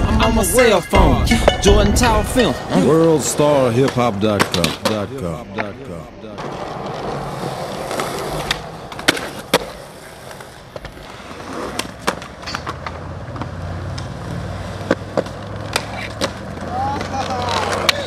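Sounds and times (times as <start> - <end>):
skateboard wheels rolling on concrete: 1.4 - 18.0
skateboard clacking on ground: 2.4 - 18.0.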